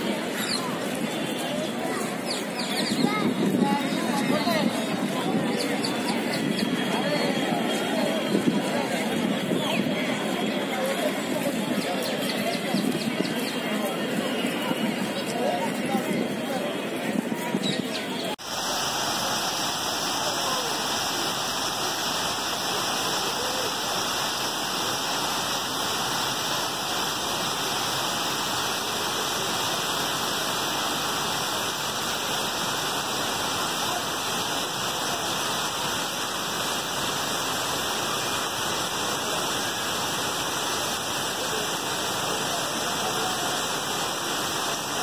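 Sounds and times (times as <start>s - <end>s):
waterfall rushing over rocks: 18.3s - 45.0s.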